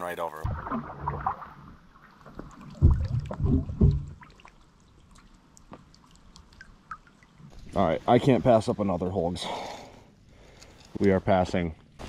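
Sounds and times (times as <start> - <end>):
water: 0.0 - 10.2
oar strokes knocking and splashing: 0.5 - 4.6.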